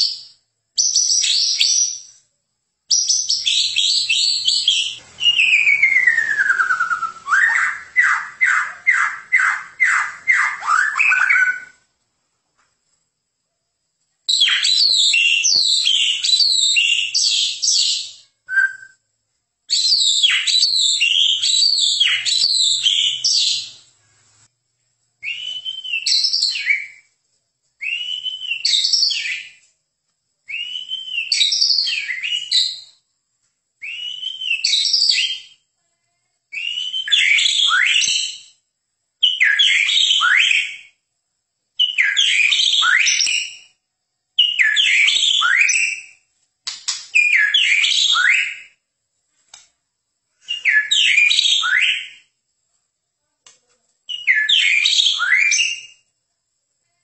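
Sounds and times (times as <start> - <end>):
songbird singing whistled phrases: 0.0 - 2.2, 2.9 - 11.9, 14.3 - 19.1, 19.7 - 23.9, 25.2 - 27.1, 27.8 - 29.6, 30.4 - 33.0, 33.8 - 35.6, 36.5 - 38.6, 39.2 - 41.0, 41.8 - 43.8, 44.4 - 48.8, 50.4 - 52.3, 54.1 - 56.1.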